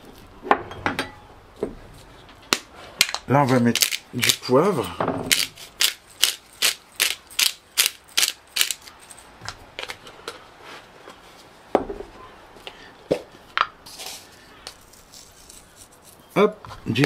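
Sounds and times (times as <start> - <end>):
pepper mill grinding clicks: 3.7 - 4.4, 5.3 - 9.0.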